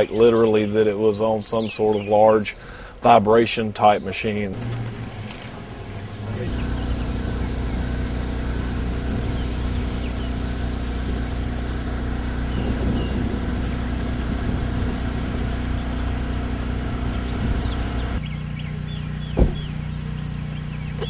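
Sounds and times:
vehicle engine running: 0:04.5 - 0:21.0.

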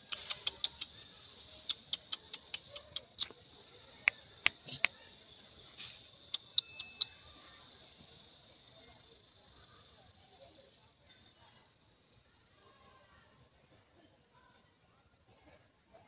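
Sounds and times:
sharp clicks and taps: 0:00.0 - 0:00.9, 0:01.6 - 0:03.4, 0:06.3 - 0:07.1.

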